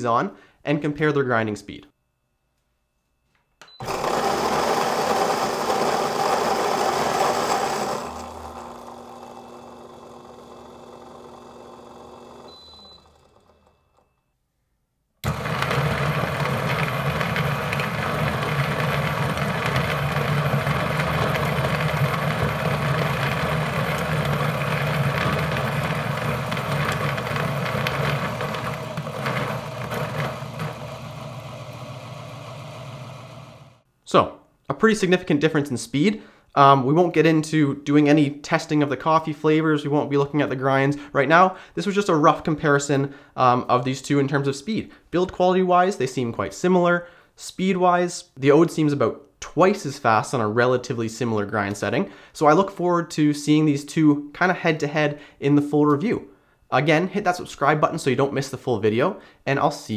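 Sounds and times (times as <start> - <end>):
coffee grinder grinding beans: 3.8 - 13.8, 15.2 - 33.8
second coffee grinder grinding: 3.8 - 14.1, 15.2 - 33.8.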